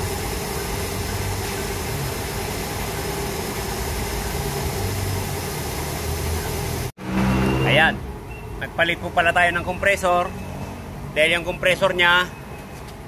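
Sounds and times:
machine running: 0.0s - 7.8s.

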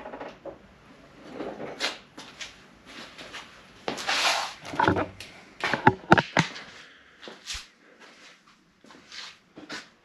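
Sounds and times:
camera knocks and clicks: 4.7s - 5.1s, 5.7s - 6.5s.

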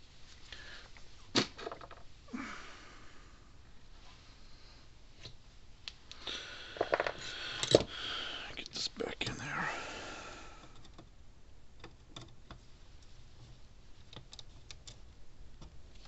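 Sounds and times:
plastic bottles rustling and knocking: 1.2s - 2.1s, 6.8s - 7.9s.

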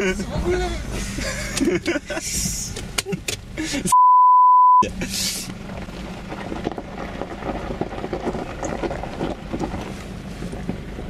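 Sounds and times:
diesel engine running: 0.0s - 3.9s, 4.8s - 11.0s
censor bleep: 3.9s - 4.8s.

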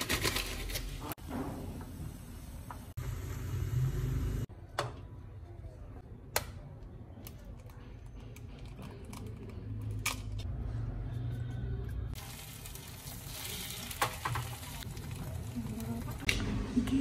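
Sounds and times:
water boiling in a frying pan: 12.2s - 16.3s.

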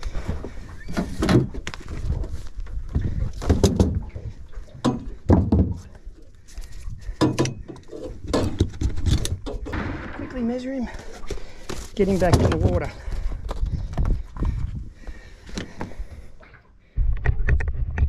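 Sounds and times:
knocks and thuds on boat deck: 3.4s - 5.9s.

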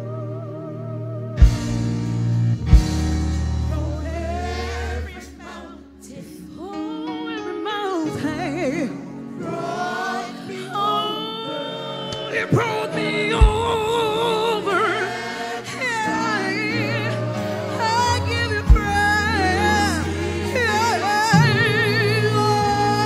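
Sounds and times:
gospel choir singing: 0.0s - 23.0s
live band playing: 1.4s - 5.1s, 17.5s - 23.0s.

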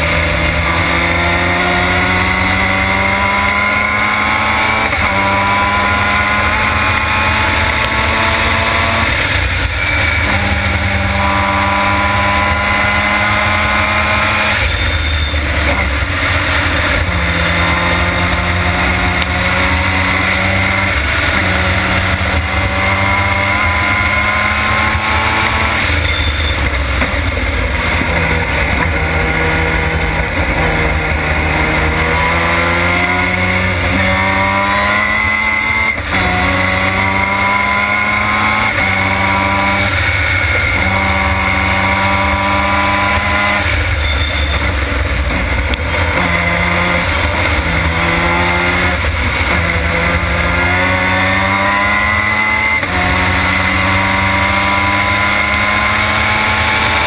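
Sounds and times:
race car engine revving: 0.0s - 57.0s.

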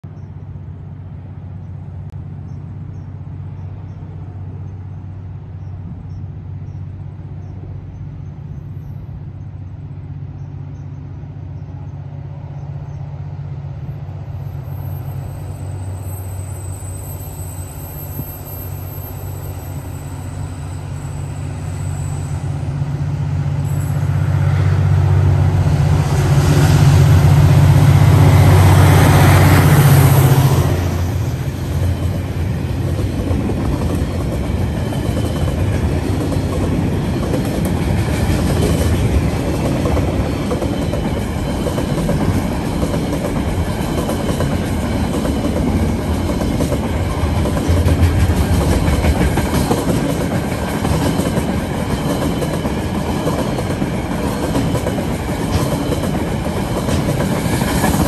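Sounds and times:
diesel locomotive engine drone: 0.0s - 58.0s
faint high ringing: 14.6s - 22.8s.

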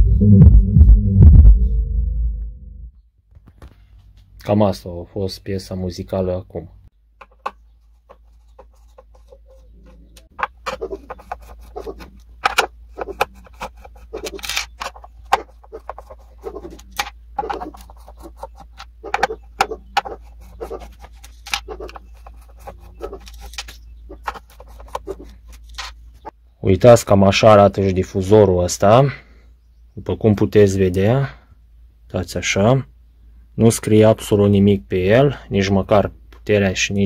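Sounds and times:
metallic clicks and scrapes: 7.2s - 26.3s.

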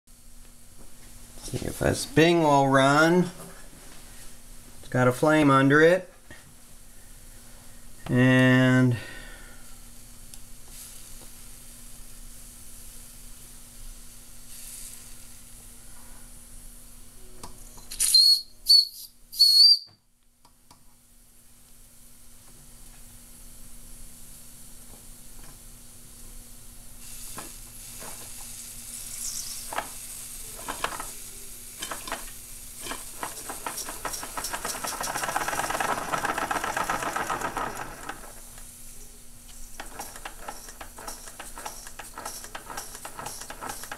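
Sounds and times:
steam hissing: 14.1s - 16.8s, 26.8s - 43.9s
steam whistle: 18.1s - 19.9s
small steam engine chuffing: 27.3s - 28.4s, 29.1s - 38.7s, 39.5s - 43.9s.

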